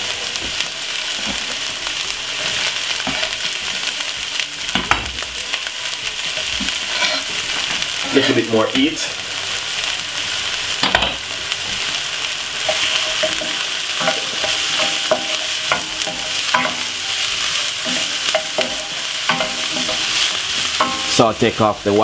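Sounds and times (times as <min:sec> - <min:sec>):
onion sizzling in oil: 0:00.0 - 0:22.0
wooden spoon scraping pan: 0:06.6 - 0:07.3.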